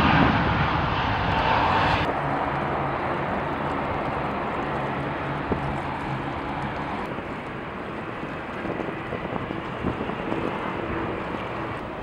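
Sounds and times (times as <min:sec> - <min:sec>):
wind on microphone: 0:00.0 - 0:02.1, 0:06.6 - 0:12.0
jet engines rumbling: 0:00.0 - 0:12.0.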